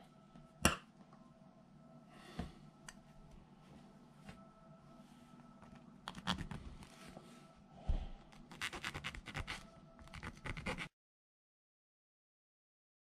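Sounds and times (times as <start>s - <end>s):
file scraping plastic: 8.4s - 10.9s.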